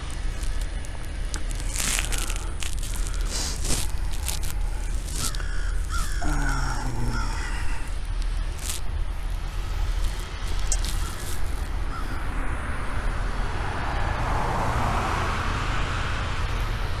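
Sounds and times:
low rumble: 0:00.0 - 0:17.0
crows cawing: 0:01.8 - 0:08.8, 0:10.8 - 0:12.4.

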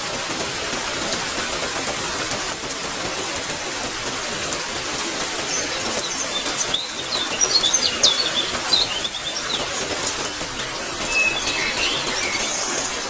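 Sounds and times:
steady rain hiss: 0:00.0 - 0:13.0
birds chirping: 0:04.8 - 0:13.0.

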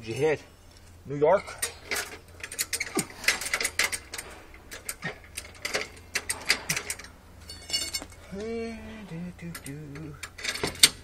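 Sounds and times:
sharp clicks and light knocks: 0:00.7 - 0:08.2.

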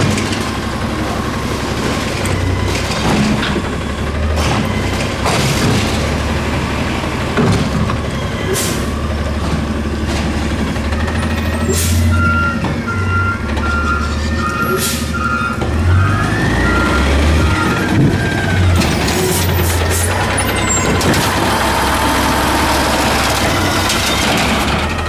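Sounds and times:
garbage truck engine running: 0:00.0 - 0:25.0
air brakes hissing: 0:08.5 - 0:08.9, 0:11.6 - 0:12.1, 0:14.7 - 0:15.2
reversing alarm beeping: 0:10.8 - 0:24.2.

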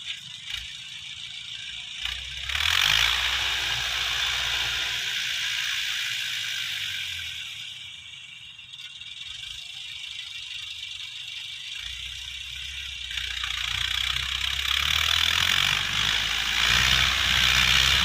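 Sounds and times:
tractor tiller clattering: 0:00.0 - 0:07.8
tractor engine humming: 0:00.0 - 0:18.0.

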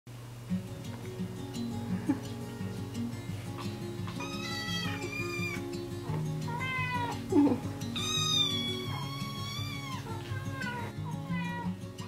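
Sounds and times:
background music: 0:00.5 - 0:12.0
kitten meowing: 0:04.1 - 0:05.6, 0:06.5 - 0:11.7.

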